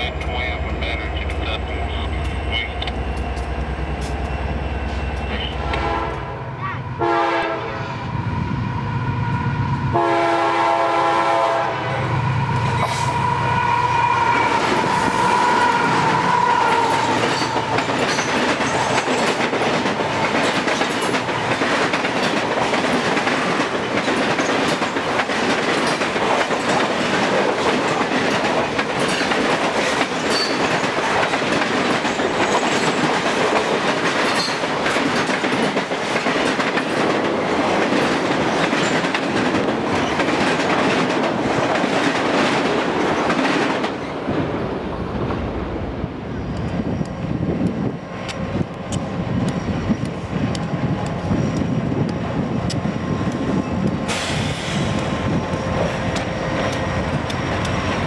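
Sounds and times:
diesel locomotive rumbling: 0.0s - 58.0s
train air horn blasts: 5.5s - 6.4s, 7.0s - 7.8s, 9.9s - 12.1s
boxcars clickety-clack: 17.0s - 44.0s
high squeal of wheels: 30.3s - 30.6s.

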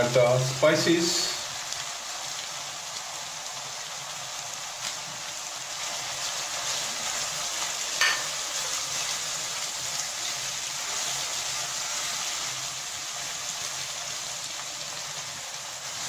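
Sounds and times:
masala sizzling in hot oil: 0.0s - 16.0s
spatula tapping pan: 8.0s - 8.4s.

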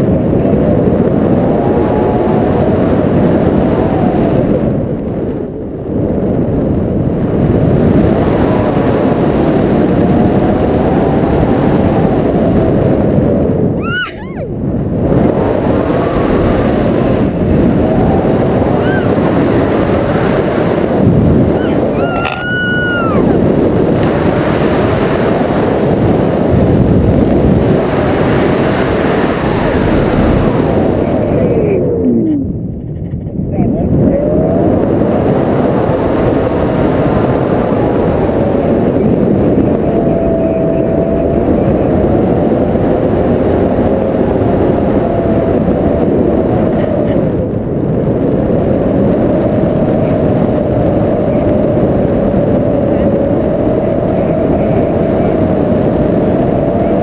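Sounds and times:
wind buffeting microphone: 0.0s - 57.0s
short high-pitched cries: 13.8s - 14.5s, 21.6s - 23.2s.

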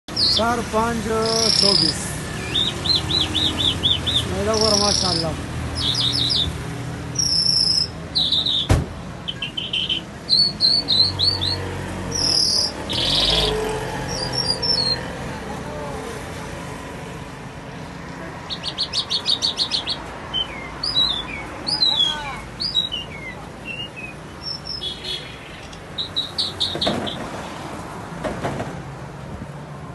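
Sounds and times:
lark singing: 0.1s - 15.0s, 18.5s - 26.9s.

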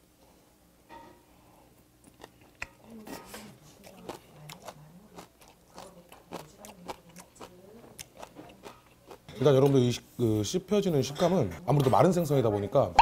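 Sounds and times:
wet chewing smacks and clicks: 3.7s - 9.3s.

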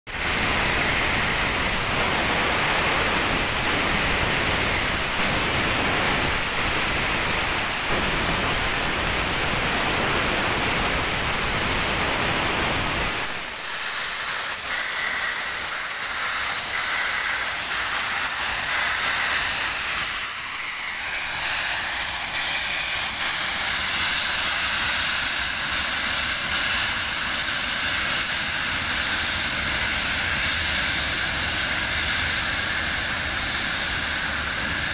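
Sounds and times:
steam locomotive venting steam: 0.1s - 34.9s.

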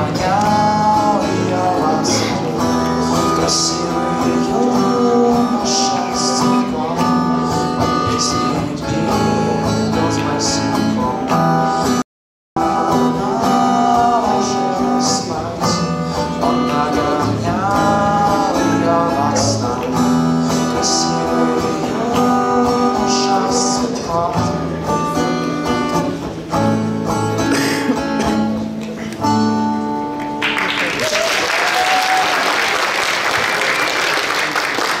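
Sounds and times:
acoustic guitar: 0.0s - 12.0s, 12.6s - 31.1s
man singing: 0.0s - 12.0s, 12.6s - 26.8s
audience applauding: 30.2s - 35.0s.

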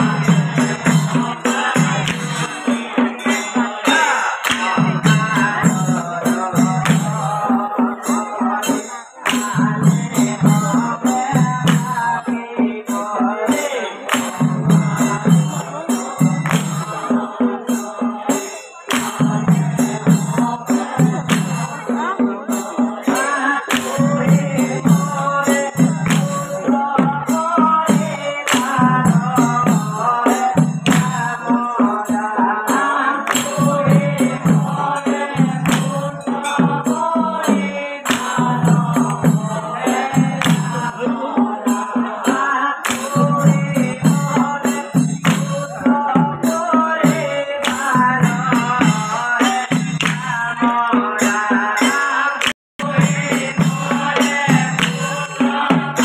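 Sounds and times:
group of men singing: 0.0s - 56.0s
jingling percussion beat: 0.0s - 56.0s
man singing into a microphone: 0.0s - 56.0s.

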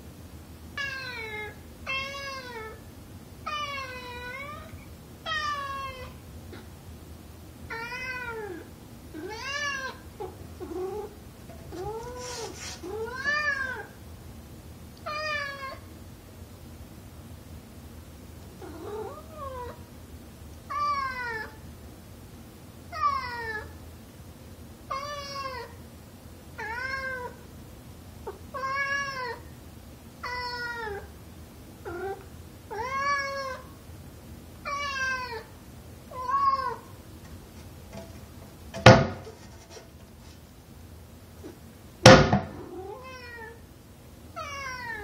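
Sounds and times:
cat meowing: 9.2s - 11.1s, 11.7s - 13.9s, 28.3s - 29.4s, 34.7s - 35.5s, 36.1s - 36.9s, 42.6s - 43.6s, 44.4s - 45.0s
knock against door: 38.7s - 39.3s.

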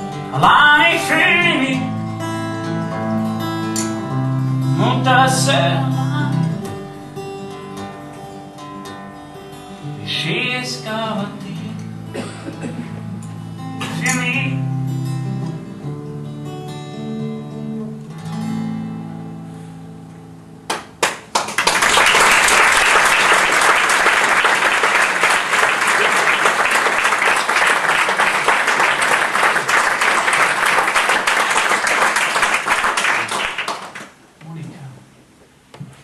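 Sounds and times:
acoustic guitar chords: 0.0s - 21.4s
sharp claps: 20.7s - 34.2s
audience applause: 21.0s - 34.2s.

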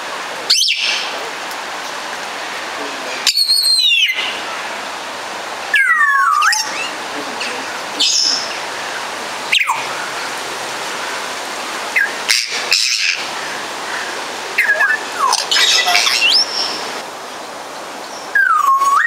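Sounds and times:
steady hiss: 0.0s - 19.0s
parrot whistled calls: 3.3s - 4.2s, 5.8s - 6.9s, 14.6s - 16.8s, 18.4s - 19.0s.

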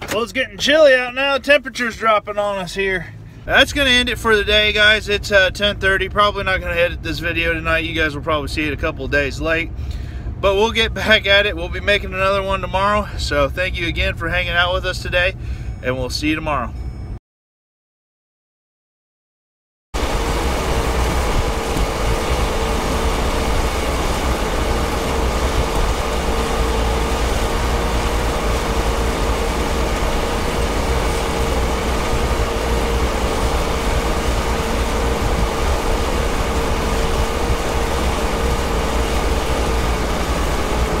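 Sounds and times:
combine harvester running: 20.0s - 41.0s.

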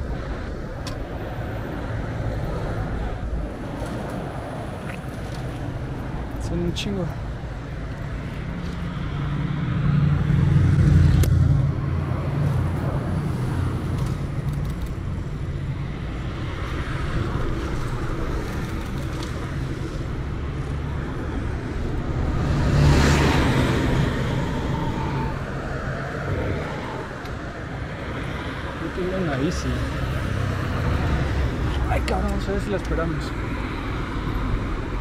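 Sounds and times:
street traffic rumble: 0.0s - 35.0s
vehicle passing close: 8.2s - 15.1s, 16.3s - 35.0s.

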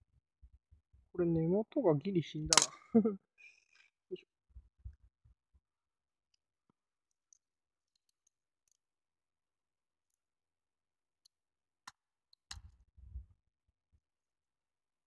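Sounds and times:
small plastic parts clicking: 2.5s - 2.8s.

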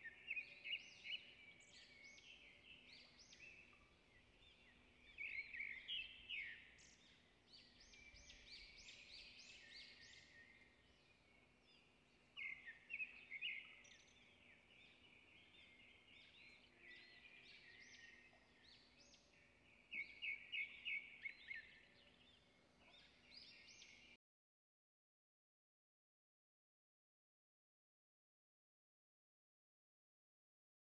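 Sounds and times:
birds chirping: 0.0s - 24.2s.

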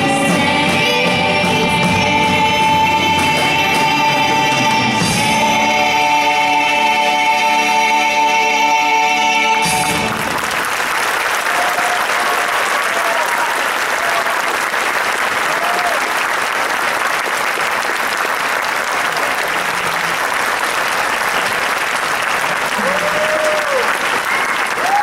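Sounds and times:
band and choir final chord: 0.0s - 10.5s
audience applauding: 9.7s - 25.0s
crowd calling out: 11.4s - 14.6s, 15.4s - 16.2s, 22.6s - 25.0s.

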